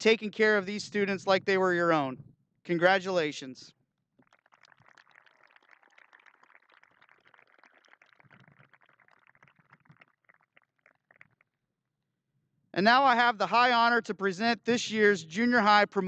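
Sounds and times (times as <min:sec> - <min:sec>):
faint audience applause: 0:04.2 - 0:11.4.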